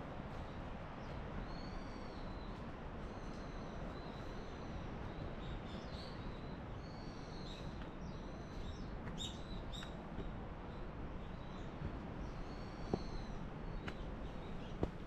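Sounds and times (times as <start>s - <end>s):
small birds chirping: 3.2s - 10.0s, 10.7s - 15.0s.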